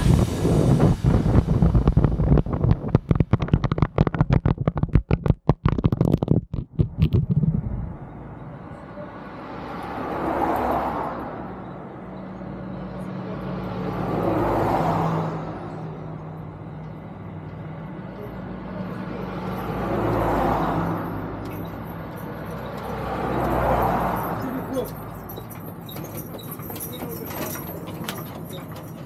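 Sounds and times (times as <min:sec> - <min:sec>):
vehicles passing by: 0:00.0 - 0:29.0
sharp knocks and clatter: 0:02.4 - 0:07.6.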